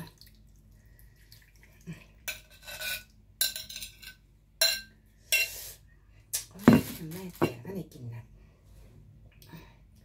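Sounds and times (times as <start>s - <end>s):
metal spoon scraping ceramic bowl: 2.3s - 5.6s.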